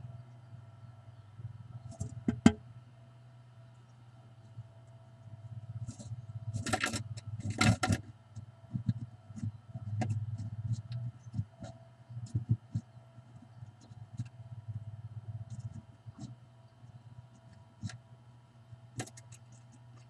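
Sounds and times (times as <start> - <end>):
low electrical hum: 0.0 - 20.0
bird scratchy rustles: 5.8 - 14.8, 15.4 - 18.0, 18.9 - 20.0
claws tapping on wood: 19.0 - 20.0.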